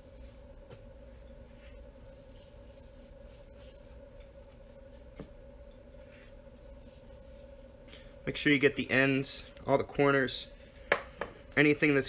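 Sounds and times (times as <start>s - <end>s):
steady hum: 0.0s - 12.0s
hands rubbing meat: 1.5s - 5.3s, 6.0s - 8.6s.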